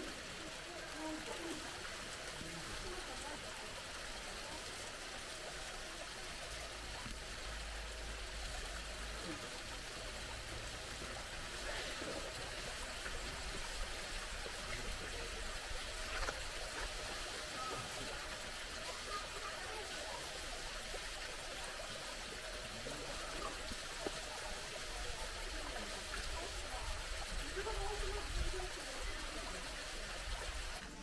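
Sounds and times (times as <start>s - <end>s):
flowing water rushing: 0.0s - 31.0s.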